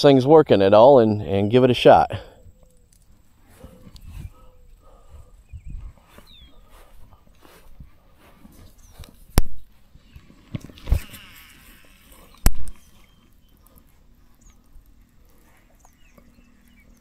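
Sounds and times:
fishing line whirring off spool: 0:10.0 - 0:13.5.

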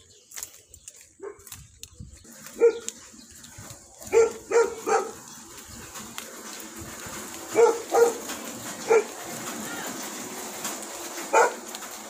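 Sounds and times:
dog barking: 0:02.6 - 0:02.9, 0:04.1 - 0:05.2, 0:07.5 - 0:08.2, 0:08.9 - 0:09.1, 0:11.3 - 0:11.6.

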